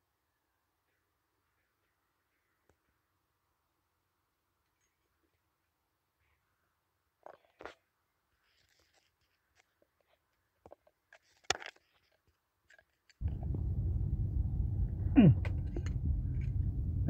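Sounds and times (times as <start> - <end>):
steady low rumble: 13.2 - 17.0.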